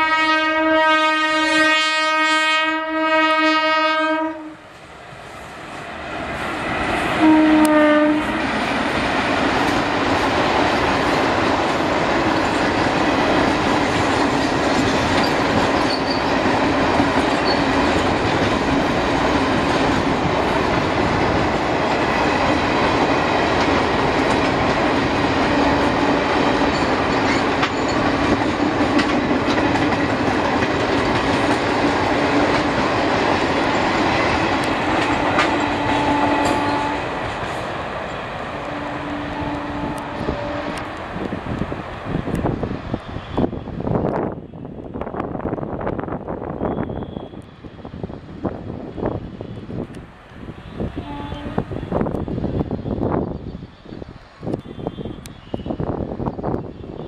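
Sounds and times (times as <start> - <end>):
train horn blast: 0.0 - 4.7, 7.1 - 8.6, 35.0 - 37.4, 38.5 - 40.9, 50.7 - 51.9, 54.5 - 55.9
train wheels clattering on rails: 8.3 - 38.5.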